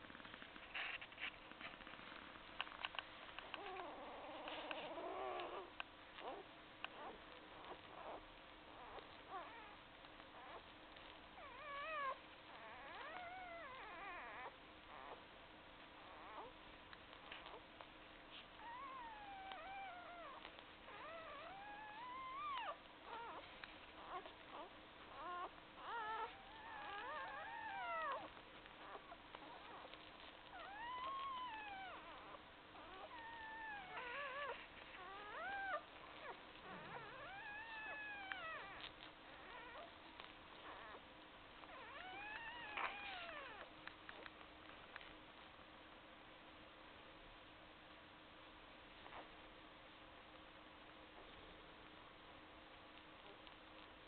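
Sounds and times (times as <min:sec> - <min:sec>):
puppies squeaking and whining: 0:03.4 - 0:15.2, 0:16.0 - 0:16.6, 0:18.3 - 0:41.0, 0:41.6 - 0:44.3.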